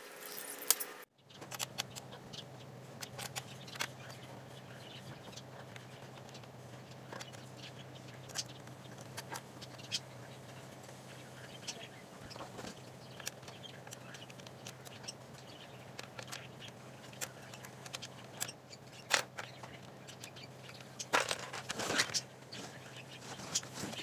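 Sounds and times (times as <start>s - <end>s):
scraping and rubbing: 20.8s - 24.0s.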